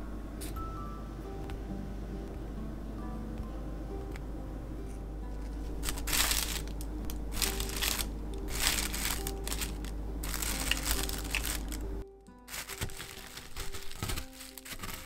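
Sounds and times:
soft background music: 0.0 - 15.0
plastic bag crinkling: 5.5 - 11.9, 12.5 - 15.0.

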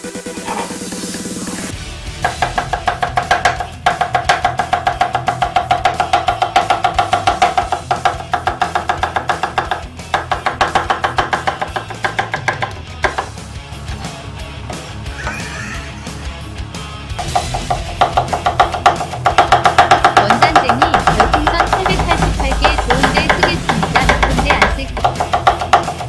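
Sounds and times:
electronic background music: 0.0 - 26.0
cleaver chopping on wooden board: 2.2 - 13.4, 17.2 - 26.0.

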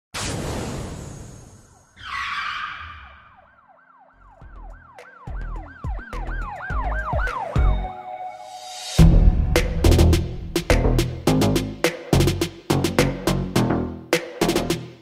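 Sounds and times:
siren wail: 1.9 - 8.6
deep bass hits: 9.0 - 13.2.

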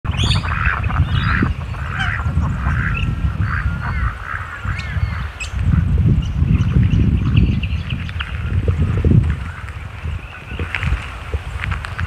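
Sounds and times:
wind rumble on microphone: 0.0 - 12.0
birds giving short calls: 0.1 - 8.5.

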